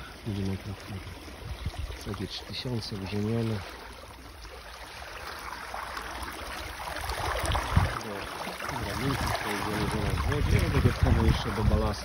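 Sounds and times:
water rushing along hull: 0.0s - 12.0s
wind buffeting microphone: 1.1s - 2.3s, 6.9s - 8.2s, 8.8s - 12.0s.

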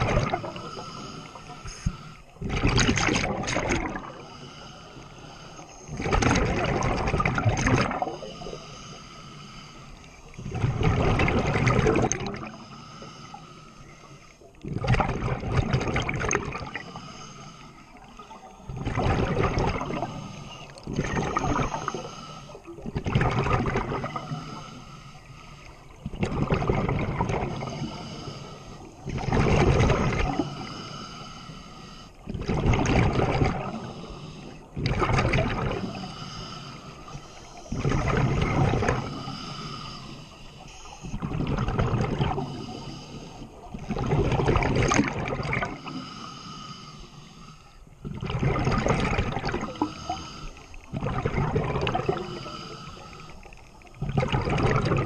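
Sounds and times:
diver exhaling bubbles: 0.0s - 4.2s, 5.9s - 8.4s, 10.4s - 12.6s, 14.6s - 16.9s, 18.7s - 24.7s, 26.0s - 28.1s, 29.0s - 30.7s, 32.3s - 33.9s, 34.8s - 36.4s, 37.7s - 40.0s, 41.1s - 42.8s, 43.8s - 46.1s, 48.0s - 53.2s, 54.0s - 55.0s.

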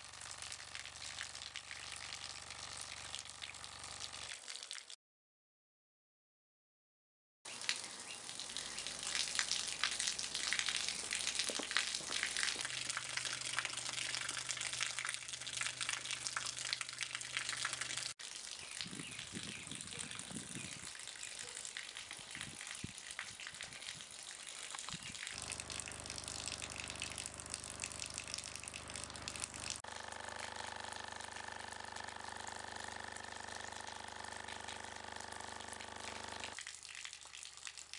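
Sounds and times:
water pouring from a hose: 0.0s - 5.0s, 7.5s - 37.9s
low steady hum: 25.4s - 36.5s.

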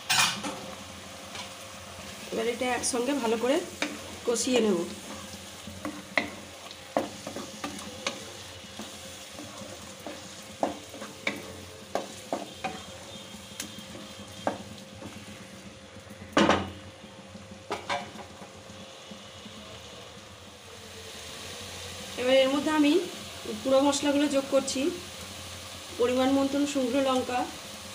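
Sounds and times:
masala sizzling in a pan: 0.0s - 27.9s
spatula stirring and scraping: 2.9s - 15.8s.

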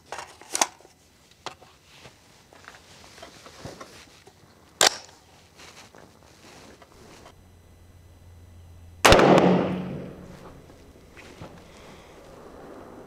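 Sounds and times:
faint clicks and rustles: 0.0s - 7.8s.

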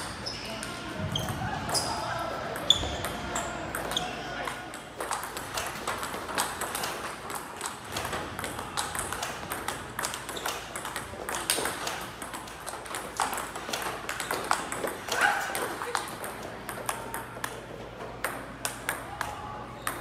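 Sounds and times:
ping pong ball clicking: 4.7s - 17.6s, 18.2s - 20.0s.

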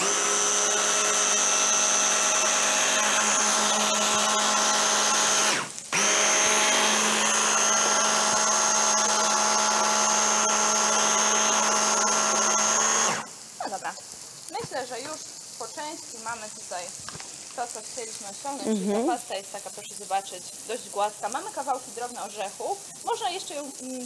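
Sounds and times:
hand blender motor whine: 0.0s - 13.4s.

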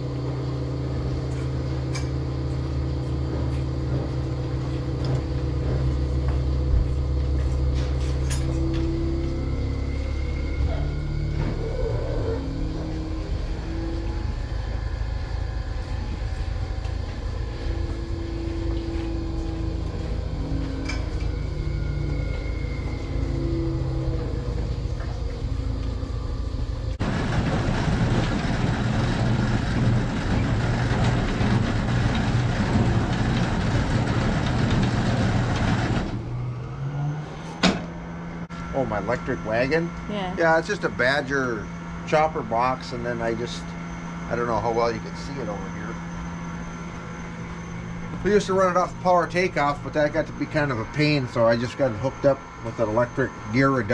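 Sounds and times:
milking equipment hum: 0.0s - 53.9s
silage chopper running: 0.0s - 53.9s.

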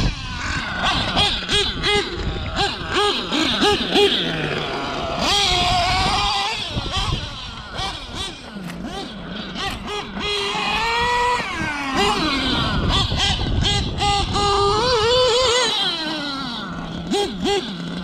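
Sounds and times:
model truck engine revving: 0.0s - 18.0s.

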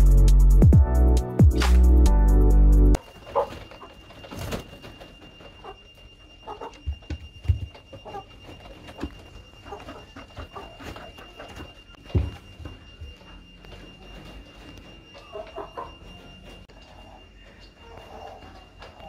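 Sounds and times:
chickens clucking softly: 6.4s - 6.8s.

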